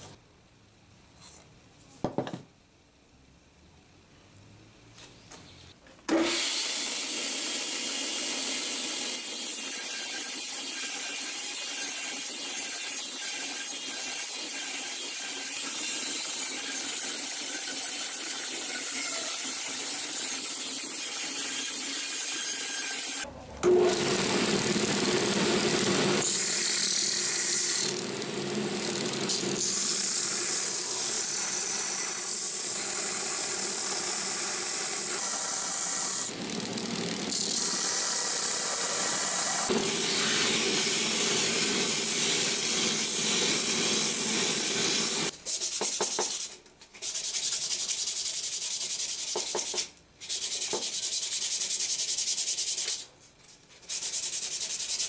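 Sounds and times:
bandsaw cutting wood: 6.2s - 45.3s.

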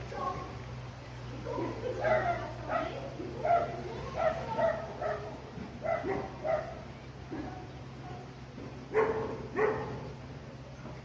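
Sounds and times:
dog barking: 2.0s - 6.8s, 8.9s - 10.0s.

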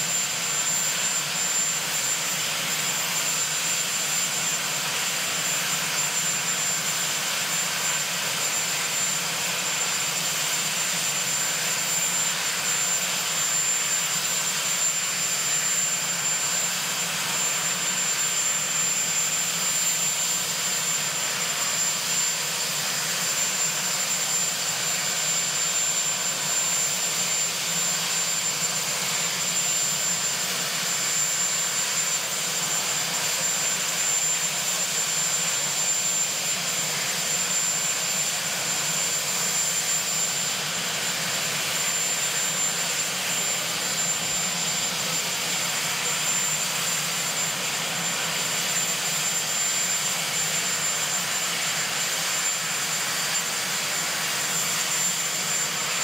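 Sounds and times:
helicopter turbine engines: 0.0s - 56.0s.

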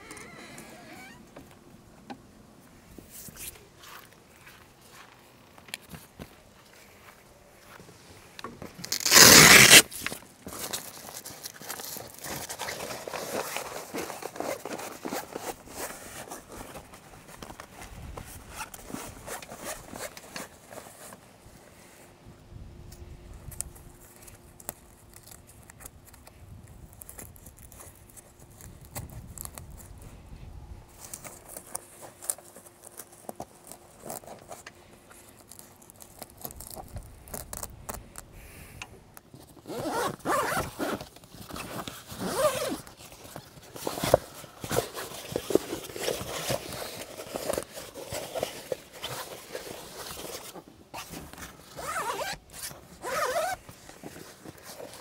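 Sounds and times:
zipper pulled: 0.0s - 1.2s, 8.9s - 10.1s, 39.6s - 55.0s
faint clicks and handling noise: 0.0s - 22.2s, 22.8s - 55.0s.

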